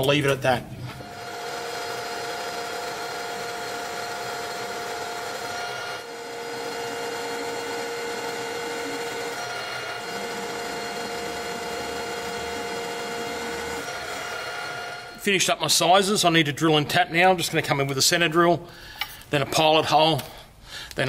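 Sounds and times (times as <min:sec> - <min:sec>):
metal lathe whine: 0:01.0 - 0:15.3.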